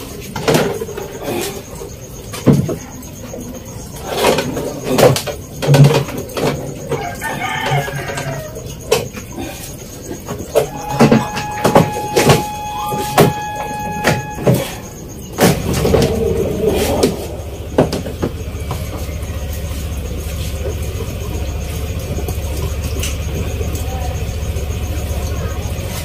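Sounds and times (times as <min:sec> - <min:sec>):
low engine-like rumble: 0:00.0 - 0:26.0
steady high tone: 0:10.5 - 0:22.2.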